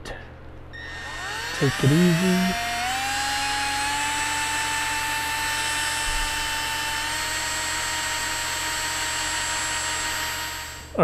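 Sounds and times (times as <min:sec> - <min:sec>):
cordless drill whining: 0:00.8 - 0:11.0.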